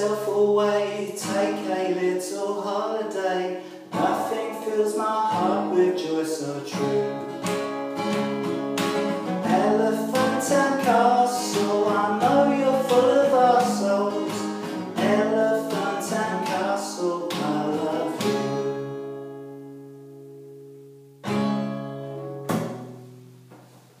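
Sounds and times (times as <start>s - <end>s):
man singing: 0.0s - 7.5s, 9.3s - 19.3s
acoustic guitar strumming: 0.0s - 24.0s.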